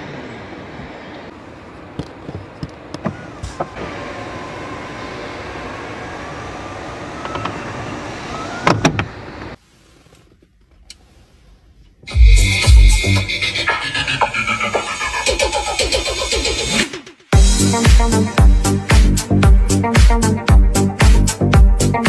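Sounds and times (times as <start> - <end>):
seat clunking: 1.9 - 3.9, 8.6 - 11.2
electric seat motor whining: 3.1 - 9.6.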